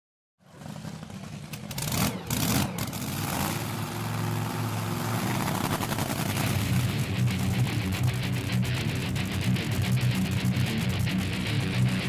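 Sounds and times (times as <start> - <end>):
drag racing engine rumble: 0.4 - 12.0
engine bursts: 0.4 - 12.0.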